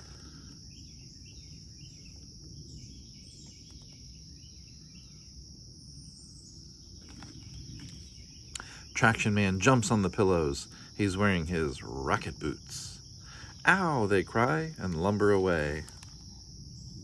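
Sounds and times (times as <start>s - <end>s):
bird chirps: 0.0s - 10.1s
high-pitched insect chorus: 0.0s - 17.0s.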